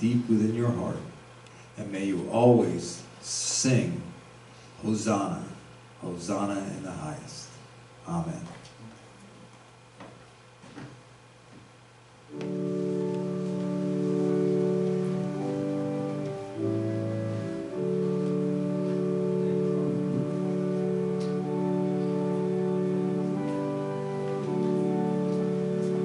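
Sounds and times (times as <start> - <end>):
church organ chords: 12.3 - 26.0.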